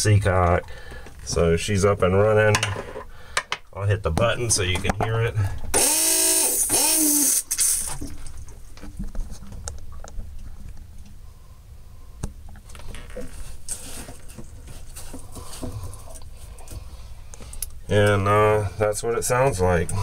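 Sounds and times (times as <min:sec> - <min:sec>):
electric pump running: 0:05.7 - 0:07.9.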